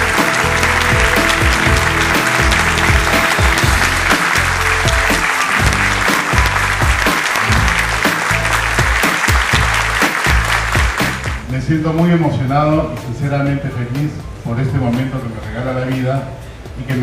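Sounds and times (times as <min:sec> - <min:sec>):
audience applauding: 0:00.0 - 0:11.4
background music: 0:00.0 - 0:17.0.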